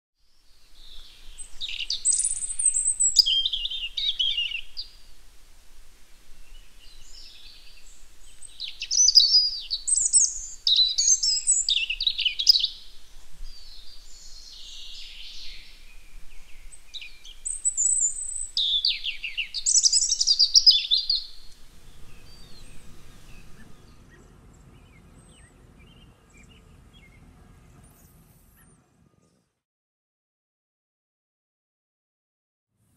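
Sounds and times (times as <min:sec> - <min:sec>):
songbird chirps and trills: 0:00.3 - 0:28.6
faint low hum: 0:21.2 - 0:29.6.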